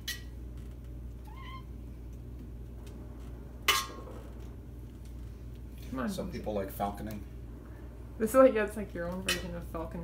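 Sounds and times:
cat meowing: 1.2s - 1.7s.

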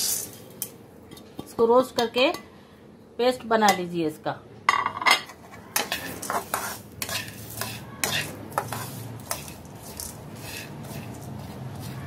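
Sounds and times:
spoon scraping roasting seeds: 0.0s - 1.2s, 5.3s - 12.0s.

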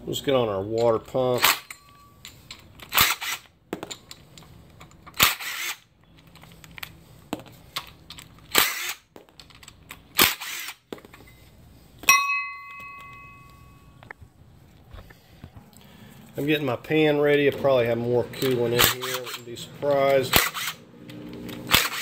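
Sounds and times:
metal part clanking: 0.8s - 3.0s, 18.2s - 20.8s
small clicks and handling noise: 1.7s - 3.0s, 3.7s - 5.3s, 5.9s - 10.2s
impact driver hammering: 21.7s - 22.0s.

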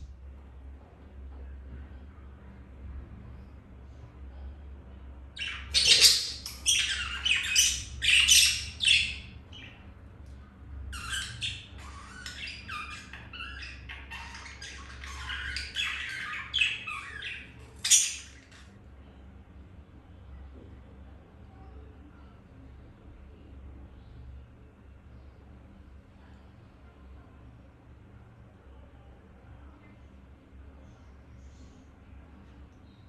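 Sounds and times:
budgerigars squawking and chattering: 5.4s - 9.8s, 10.9s - 18.6s.

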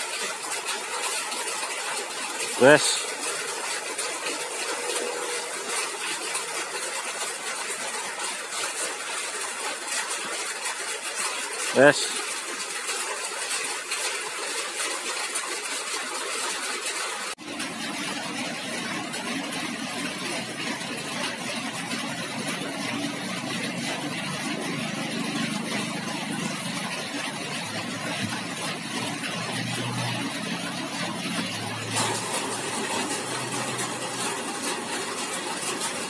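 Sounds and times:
street traffic: 2.4s - 3.6s, 4.2s - 6.0s, 20.1s - 36.0s
vehicle engine humming: 22.0s - 36.0s.

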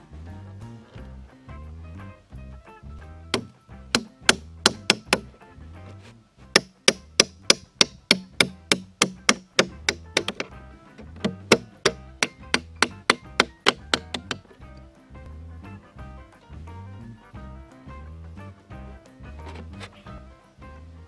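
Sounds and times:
hammer striking nail: 3.4s - 5.3s, 6.6s - 14.5s.

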